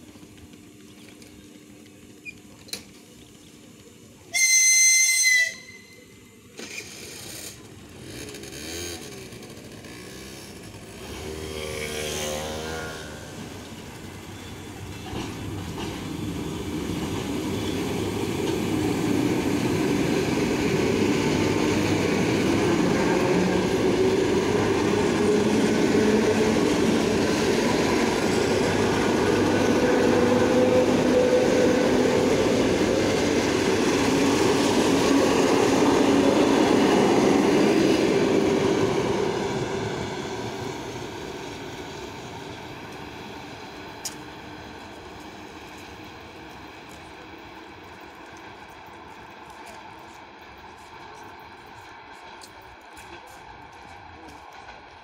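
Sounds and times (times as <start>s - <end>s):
train whistle blast: 4.3s - 6.4s
train wheels rumbling past: 6.6s - 55.0s.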